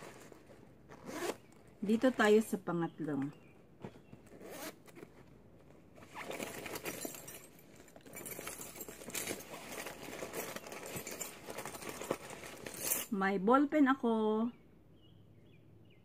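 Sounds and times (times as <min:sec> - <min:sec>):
fabric rustling in bag: 0:00.0 - 0:13.2
small items clicking and clinking: 0:06.1 - 0:13.2.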